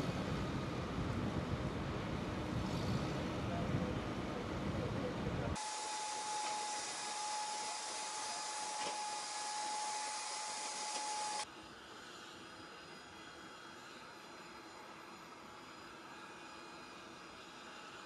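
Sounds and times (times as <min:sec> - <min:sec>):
turbine machinery whine: 0:00.0 - 0:18.0
rushing hiss: 0:05.6 - 0:11.4.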